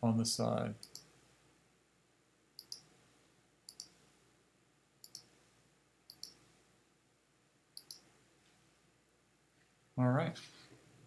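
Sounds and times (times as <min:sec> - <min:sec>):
computer mouse clicks: 0:00.8 - 0:01.1, 0:02.6 - 0:02.9, 0:03.7 - 0:04.0, 0:05.0 - 0:05.3, 0:06.1 - 0:06.4, 0:07.8 - 0:08.0.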